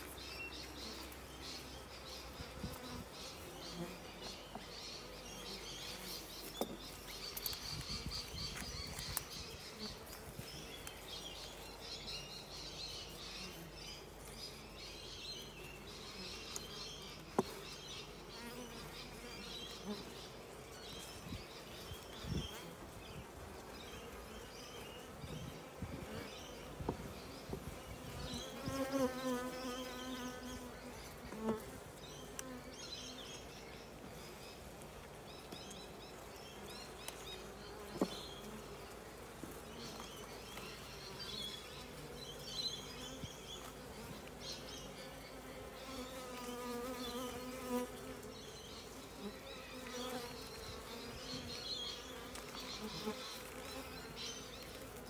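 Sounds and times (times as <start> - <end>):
bees buzzing: 0.0 - 55.0.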